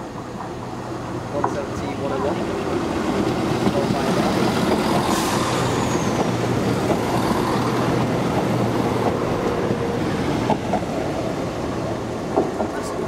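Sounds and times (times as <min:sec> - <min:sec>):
high falling squeal: 0:05.0 - 0:07.8.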